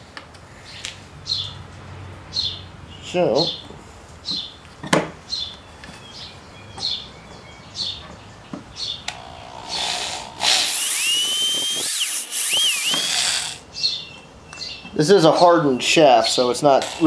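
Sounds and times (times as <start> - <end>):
electric drill whining: 9.1 - 13.6
drill bit cutting steel: 9.2 - 13.6.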